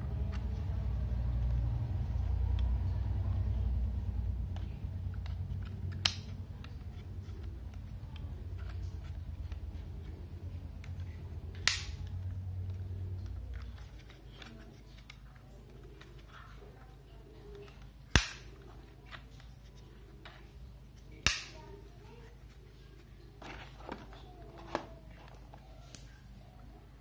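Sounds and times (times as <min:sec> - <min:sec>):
sharp plastic clicks: 0:10.8 - 0:12.3, 0:17.6 - 0:18.7, 0:21.2 - 0:21.6.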